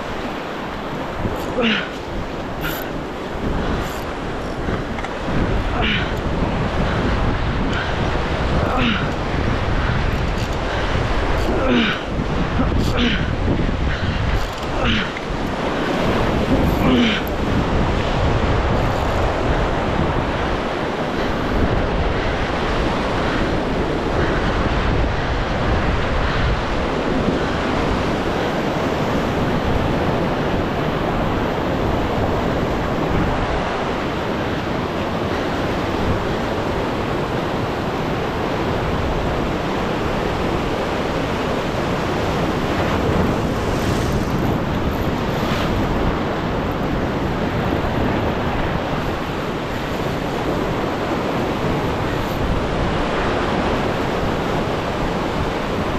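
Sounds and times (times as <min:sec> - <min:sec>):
wind buffeting microphone: 0:00.0 - 0:55.9
surf breaking over rocks: 0:38.6 - 0:55.9.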